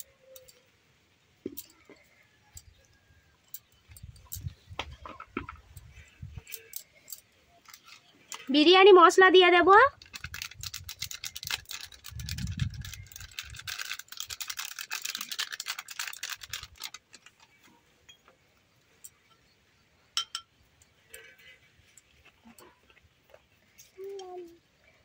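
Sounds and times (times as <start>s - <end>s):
spice sprinkling on rice: 9.9s - 17.6s.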